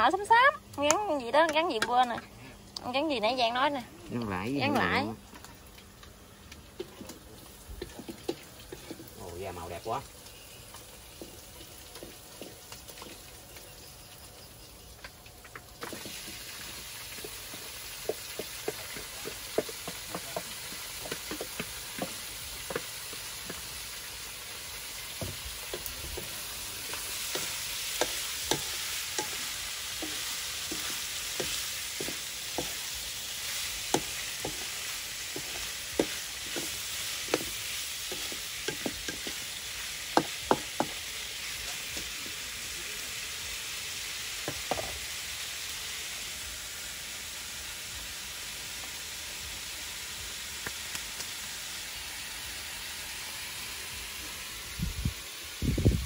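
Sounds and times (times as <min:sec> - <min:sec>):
food sizzling in a pan: 0:00.0 - 0:56.0
utensil knocking against pan: 0:40.2 - 0:41.0.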